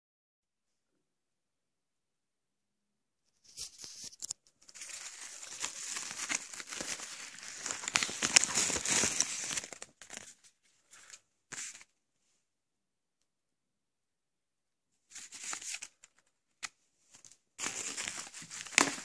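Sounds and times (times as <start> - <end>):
padded envelope crinkling: 3.5 - 11.9, 15.1 - 19.0.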